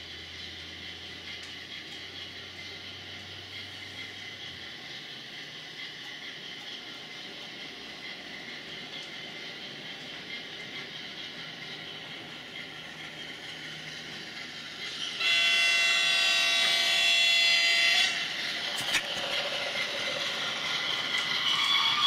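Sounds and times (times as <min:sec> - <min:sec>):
diesel locomotive multi-tone horn: 0:15.1 - 0:18.4, 0:21.5 - 0:22.0
diesel engine running: 0:18.1 - 0:22.0.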